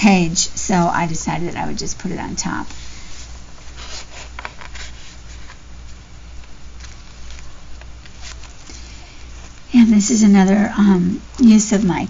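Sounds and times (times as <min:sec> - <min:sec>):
paper pages rustling: 0:02.7 - 0:12.0.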